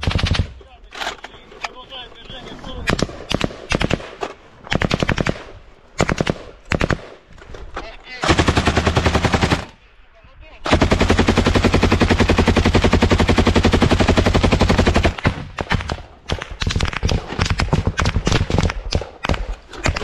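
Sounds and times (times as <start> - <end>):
machine gun firing: 0.0 - 0.6, 2.9 - 7.2, 8.2 - 9.8, 10.6 - 20.0.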